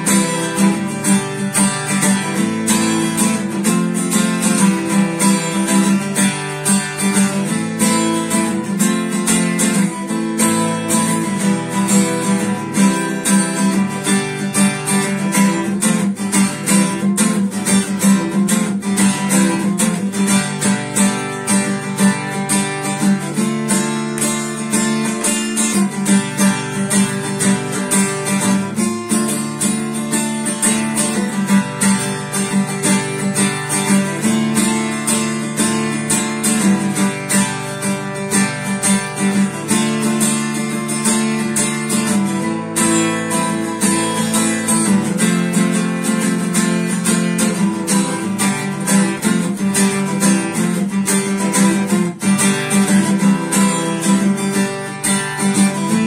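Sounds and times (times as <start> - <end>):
acoustic guitar strummed: 0.0 - 56.0.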